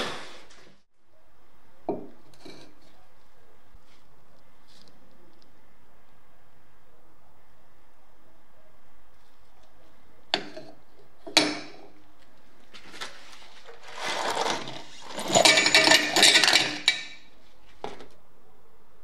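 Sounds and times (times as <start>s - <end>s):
metal parts clinking in plastic jug: 13.7s - 17.3s
bolts and nuts rattling: 13.8s - 17.3s.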